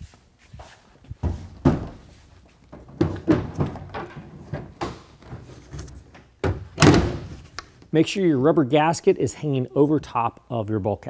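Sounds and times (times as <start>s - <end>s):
metal cover clunking and knocking: 2.7s - 7.3s.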